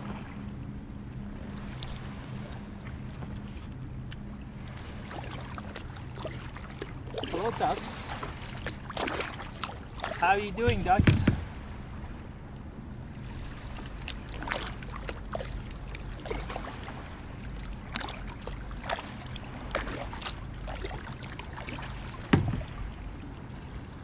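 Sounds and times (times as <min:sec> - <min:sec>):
low steady rumble: 0:00.0 - 0:24.0
kayak paddle dipping and dripping: 0:01.7 - 0:11.5, 0:13.5 - 0:24.0
loud thump: 0:10.7 - 0:11.4.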